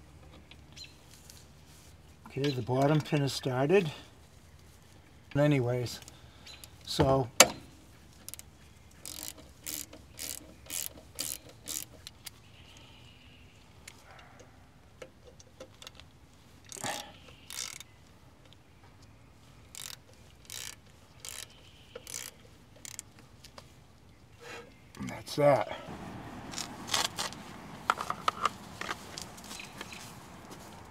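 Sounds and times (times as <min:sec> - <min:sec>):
hand ratchet clicking: 0:09.0 - 0:12.1, 0:19.7 - 0:23.1.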